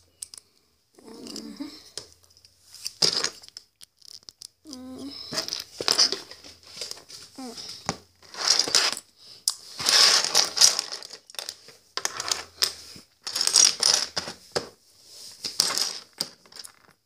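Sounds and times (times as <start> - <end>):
plastic bricks clattering: 1.0 - 6.9, 8.2 - 9.0, 9.8 - 14.7, 15.4 - 17.0.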